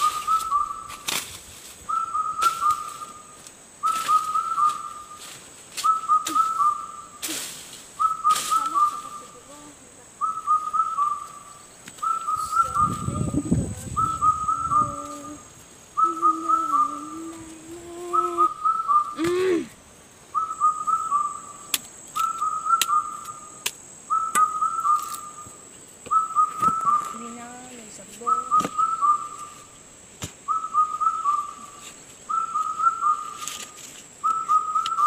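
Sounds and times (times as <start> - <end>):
person whistling: 0.0 - 0.8, 1.9 - 3.1, 5.8 - 6.9, 8.0 - 9.0, 14.0 - 15.4, 16.0 - 19.6, 30.5 - 31.7, 32.3 - 33.4, 34.2 - 35.0
rustling: 0.0 - 9.7, 31.4 - 35.0.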